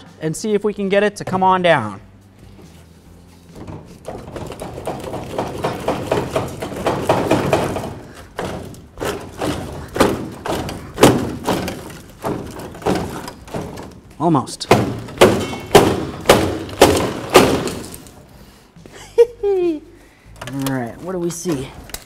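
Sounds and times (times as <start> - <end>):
metal bumper rattling and clunking: 3.5 - 18.2.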